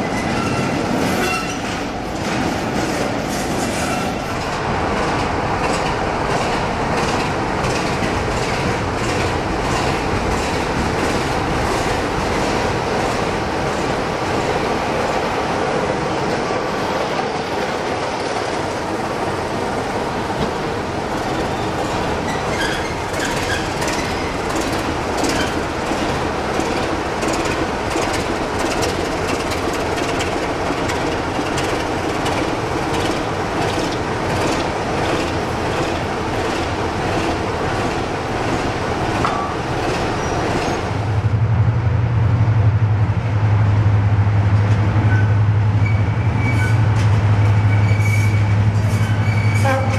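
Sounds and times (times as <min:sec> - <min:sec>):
diesel locomotive running: 0:00.0 - 0:49.9.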